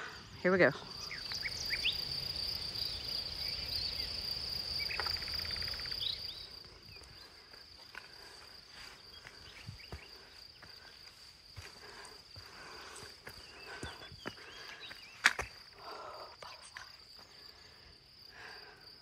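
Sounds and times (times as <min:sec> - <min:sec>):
high-pitched insect drone: 0:00.2 - 0:14.9
bird trill and chirp: 0:00.3 - 0:02.1, 0:02.8 - 0:06.6
footsteps on dirt trail: 0:06.5 - 0:17.5.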